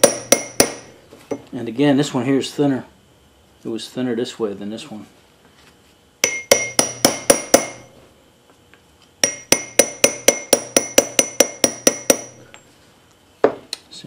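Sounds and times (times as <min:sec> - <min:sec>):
small hammer tapping metal: 0:00.0 - 0:01.4, 0:06.2 - 0:07.9, 0:09.2 - 0:12.5.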